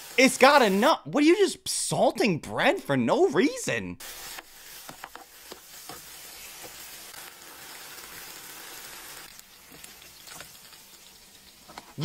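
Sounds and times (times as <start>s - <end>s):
oil sizzling in a frying pan: 0.0s - 0.8s, 4.0s - 12.0s.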